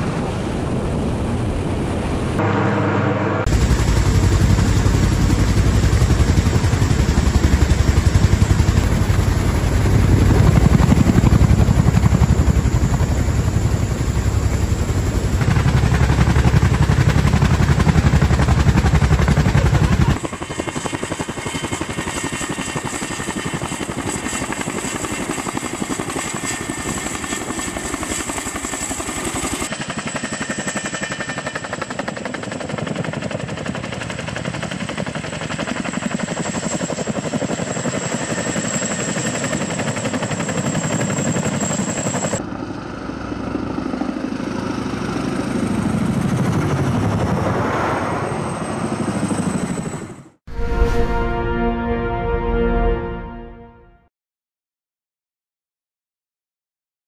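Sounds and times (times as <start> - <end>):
helicopter rotors beating: 0.0 - 50.4
high whine: 2.2 - 5.4.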